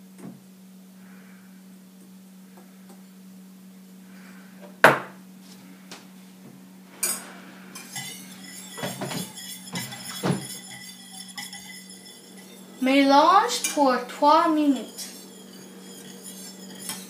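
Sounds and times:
whisk stirring in saucepan: 7.0s - 17.0s
glass bowls clinking on saucepan: 7.8s - 12.9s, 14.6s - 17.0s.

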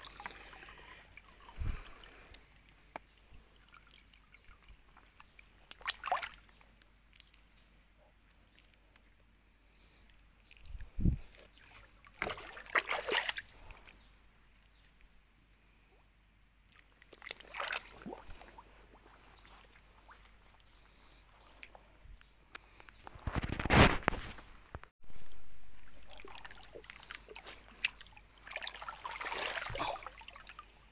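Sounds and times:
muddy water splashing: 0.0s - 7.5s, 11.2s - 14.0s, 16.7s - 20.9s, 25.0s - 30.9s.

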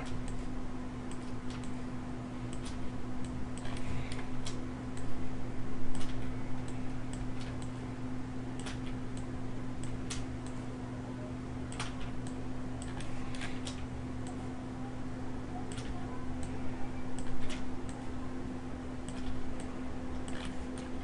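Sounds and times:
low electrical hum: 0.0s - 21.0s
mouse and keyboard clicks: 19.0s - 21.0s.

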